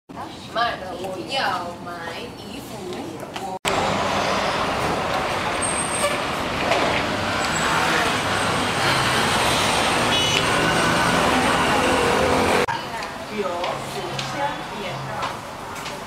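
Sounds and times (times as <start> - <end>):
passing cars and trucks: 3.7 - 16.0.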